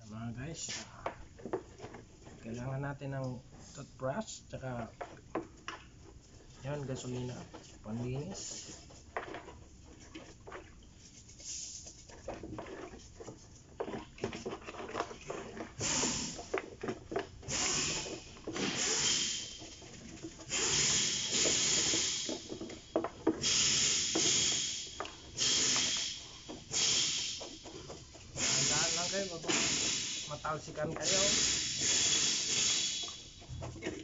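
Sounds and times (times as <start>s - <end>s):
hissing spray bursts: 15.8s - 16.4s, 17.5s - 19.6s, 20.5s - 22.5s, 23.4s - 27.6s, 28.4s - 33.4s.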